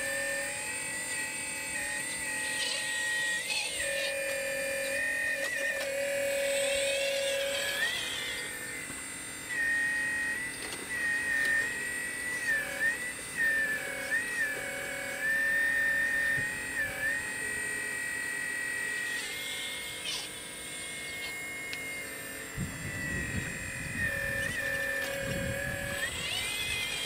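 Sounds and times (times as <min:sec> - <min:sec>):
hydraulic pump motor whining: 0:00.0 - 0:27.0.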